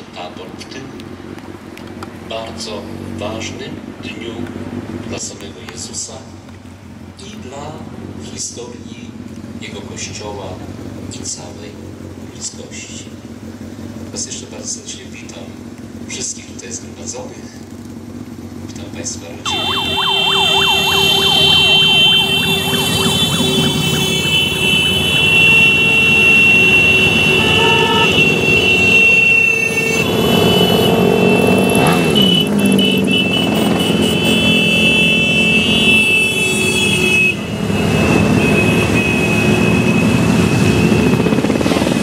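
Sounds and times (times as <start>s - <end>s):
vehicles passing: 0.0s - 42.0s
long horn tones: 19.5s - 41.0s.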